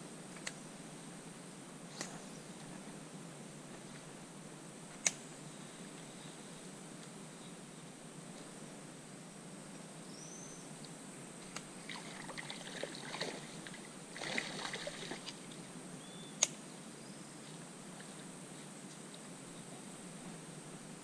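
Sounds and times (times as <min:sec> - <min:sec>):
sharp click: 0:01.9 - 0:02.2, 0:05.0 - 0:05.3, 0:16.4 - 0:16.6
faint high chirps: 0:10.1 - 0:10.7, 0:16.0 - 0:17.6
water trickling and crackling: 0:10.8 - 0:15.7.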